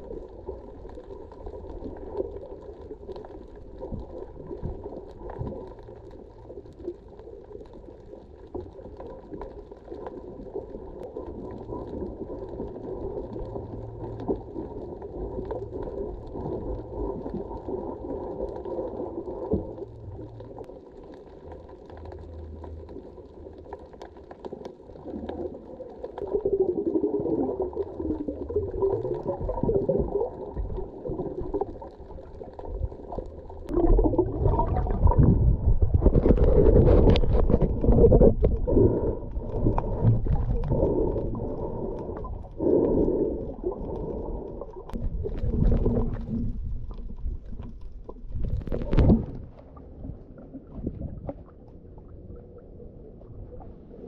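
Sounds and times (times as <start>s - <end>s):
water splashing and bubbling: 0.0s - 54.0s
underwater brush scrubbing hull: 33.8s - 49.5s.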